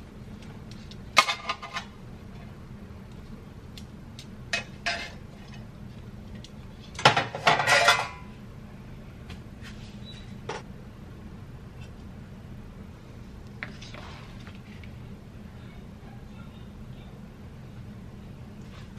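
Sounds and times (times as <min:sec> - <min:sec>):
metal cookware clattering: 0:01.2 - 0:01.9, 0:04.6 - 0:05.6, 0:07.0 - 0:08.3.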